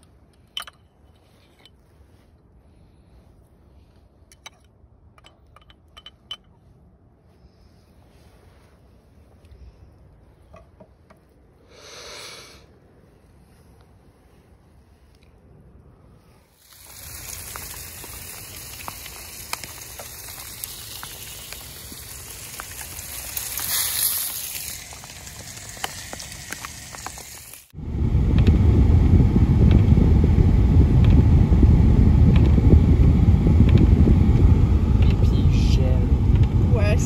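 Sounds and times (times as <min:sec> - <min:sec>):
meat sizzling in a frying pan: 0:16.6 - 0:27.7.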